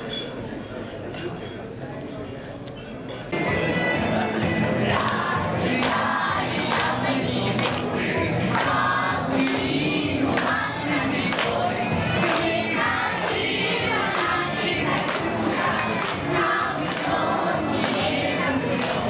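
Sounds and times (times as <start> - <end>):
children's choir singing: 4.7 - 19.0.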